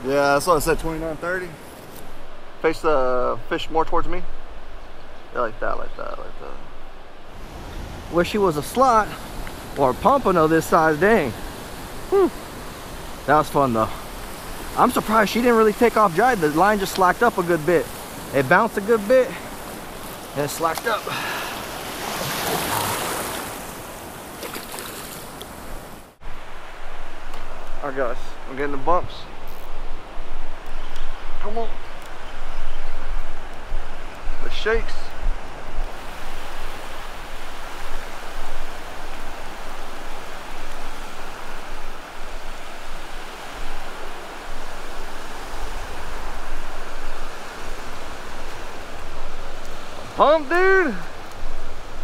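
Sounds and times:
ocean surf washing: 0:00.0 - 0:52.0
surf breaking on beach: 0:07.4 - 0:26.4.

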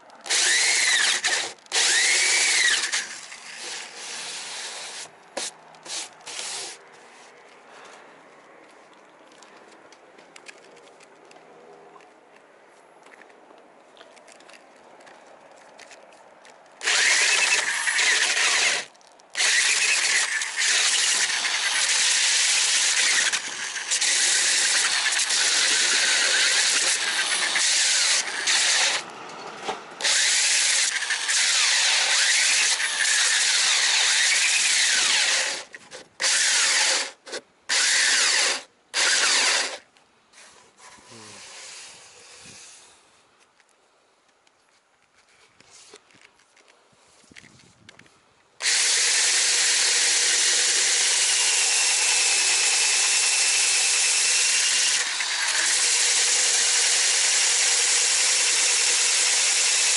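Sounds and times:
electric drill sanding epoxy: 0:16.8 - 0:29.0, 0:30.0 - 0:35.6, 0:37.7 - 0:39.8, 0:48.6 - 0:59.9.

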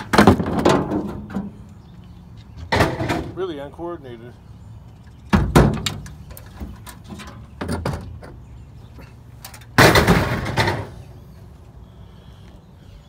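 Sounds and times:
metal sheet crashing onto scrap: 0:09.8 - 0:10.9.

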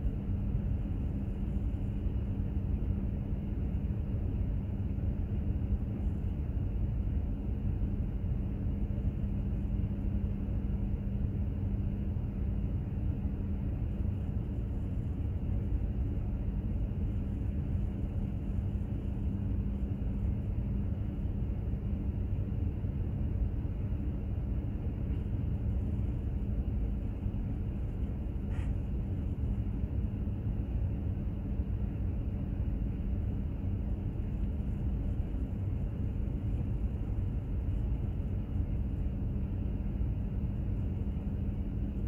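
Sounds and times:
constant low hum: 0:00.0 - 0:42.0.

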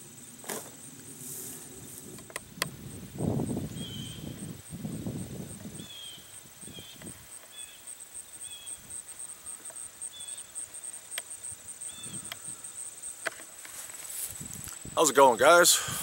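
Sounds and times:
wind rumbling: 0:00.8 - 0:07.3
bird chirping: 0:03.8 - 0:04.5, 0:05.7 - 0:08.8, 0:10.0 - 0:10.9, 0:11.8 - 0:12.4.

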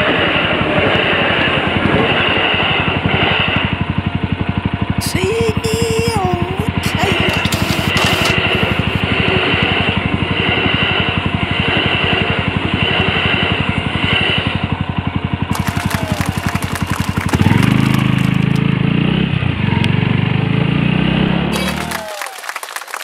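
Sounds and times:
engine pulling away under throttle: 0:00.1 - 0:05.0, 0:08.2 - 0:21.8
motorcycle engine idling: 0:12.4 - 0:19.8.

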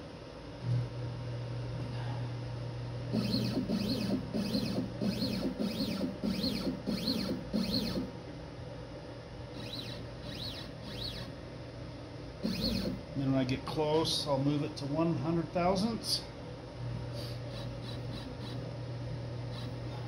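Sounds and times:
stepper motor whines: 0:03.1 - 0:08.2, 0:09.5 - 0:11.4, 0:12.4 - 0:13.1, 0:17.2 - 0:18.7, 0:19.5 - 0:20.0.

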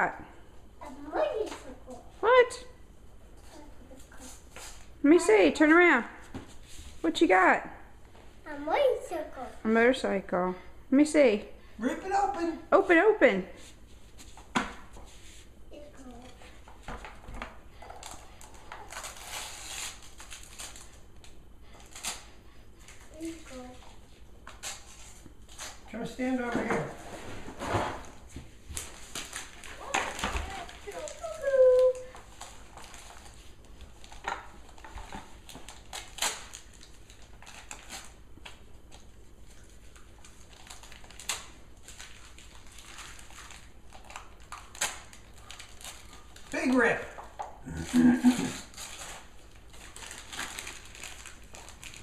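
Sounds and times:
wrapping paper crinkling: 0:17.8 - 0:22.3, 0:28.8 - 0:52.0.

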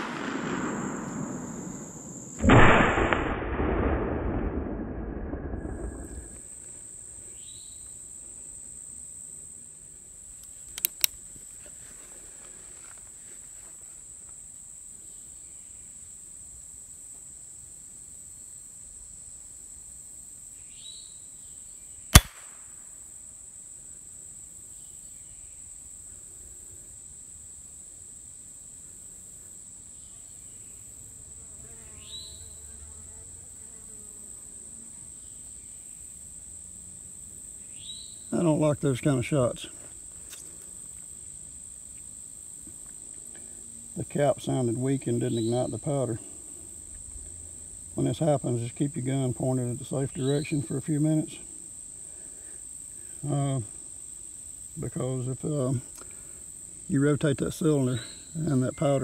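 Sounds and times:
insects droning: 0:00.0 - 0:59.0
percussion cap snap: 0:22.2 - 0:22.6
revolver metallic clicks: 0:22.2 - 0:22.6.

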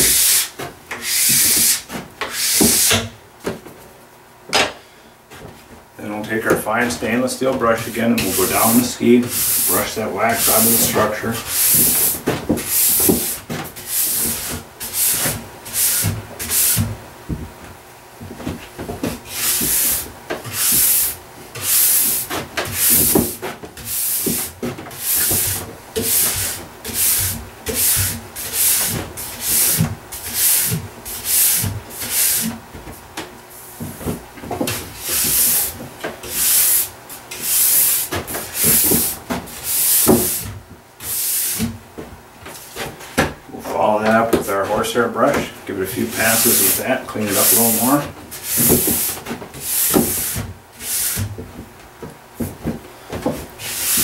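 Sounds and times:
steel brush scratching ski base: 0:00.0 - 0:03.0, 0:06.8 - 0:16.9, 0:19.3 - 0:32.5, 0:34.7 - 0:41.7, 0:43.8 - 0:51.3, 0:53.6 - 0:54.0.

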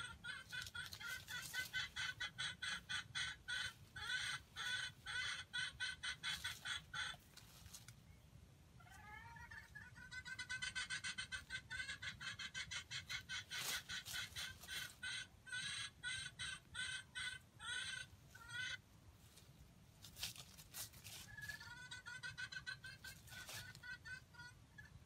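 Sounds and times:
wild chicken clucking: 0:00.0 - 0:25.0.

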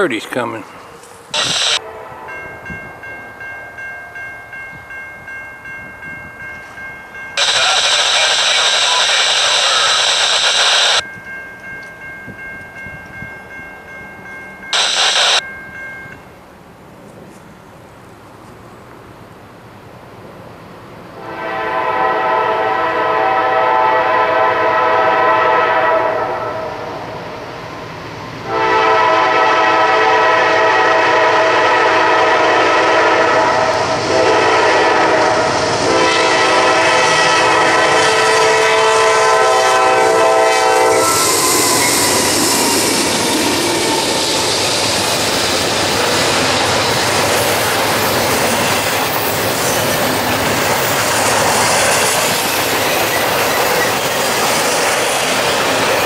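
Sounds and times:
locomotive horn blasts: 0:01.4 - 0:02.5, 0:21.2 - 0:26.7, 0:28.5 - 0:41.3
train wheels clacking on rails: 0:41.0 - 0:56.0.

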